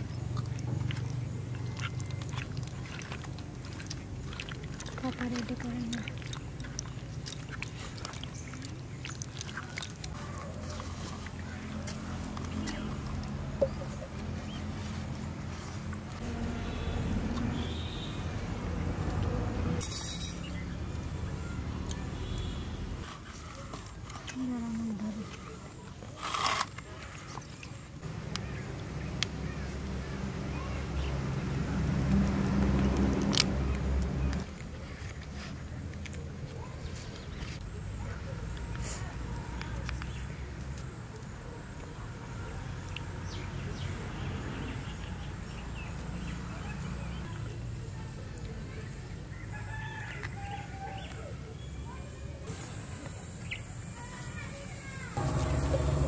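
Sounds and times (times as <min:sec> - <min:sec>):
vehicle engine humming: 0:00.0 - 0:25.6, 0:27.9 - 0:48.8, 0:51.3 - 0:56.0
high insect buzz: 0:52.5 - 0:56.0.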